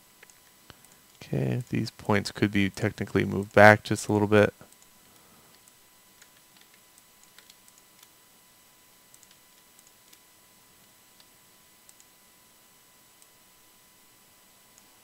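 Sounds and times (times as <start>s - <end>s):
high electrical whine: 0.0s - 5.0s
mouse and keyboard clicks: 5.5s - 8.1s, 9.1s - 10.2s.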